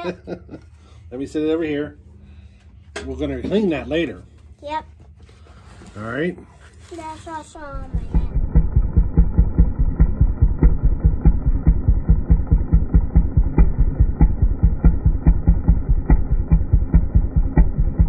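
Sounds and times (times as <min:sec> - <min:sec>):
chainsaw engine idling: 0:07.7 - 0:18.0.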